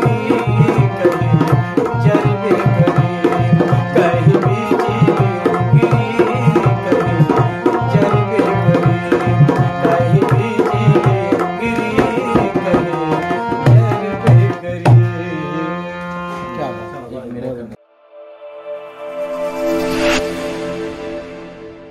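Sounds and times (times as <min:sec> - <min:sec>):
dholak drum rhythm: 0:00.0 - 0:16.0
harmonium chords: 0:00.0 - 0:21.9.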